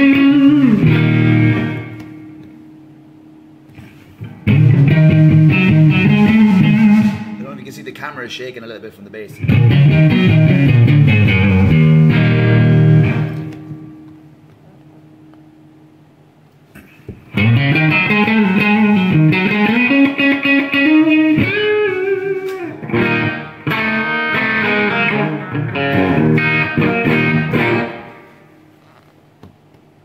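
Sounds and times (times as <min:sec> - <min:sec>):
overdriven electric guitar: 0:00.0 - 0:02.6, 0:03.7 - 0:07.4, 0:09.4 - 0:14.6, 0:17.2 - 0:28.5
amp hum: 0:00.0 - 0:30.0.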